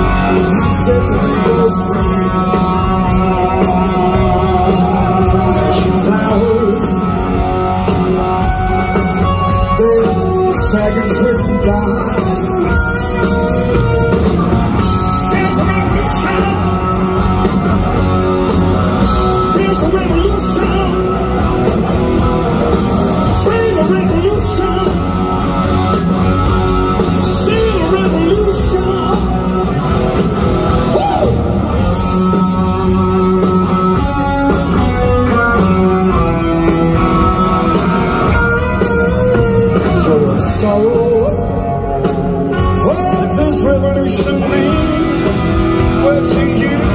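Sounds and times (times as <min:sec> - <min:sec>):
male singer vocals: 0:00.0 - 0:07.8, 0:09.4 - 0:14.2, 0:14.9 - 0:17.2, 0:19.3 - 0:21.3, 0:23.2 - 0:25.3, 0:27.1 - 0:29.6, 0:39.0 - 0:46.9
electric guitar: 0:00.0 - 0:46.9
rock band playing live: 0:00.0 - 0:46.9.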